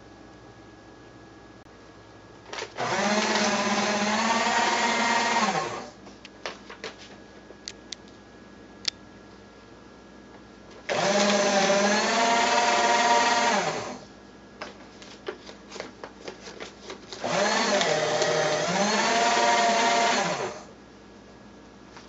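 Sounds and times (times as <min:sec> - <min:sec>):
paper shredder running: 0:02.5 - 0:06.0, 0:10.8 - 0:14.1, 0:15.0 - 0:20.8.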